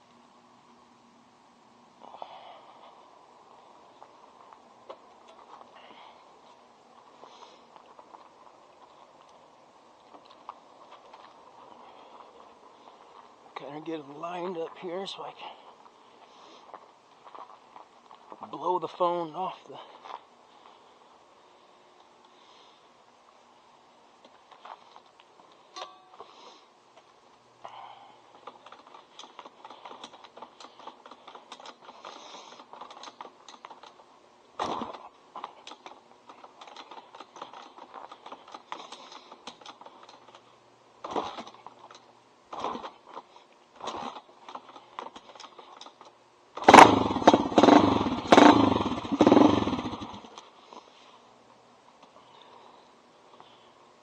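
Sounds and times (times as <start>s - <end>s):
dirt bike engine running unevenly: 46.6s - 50.4s.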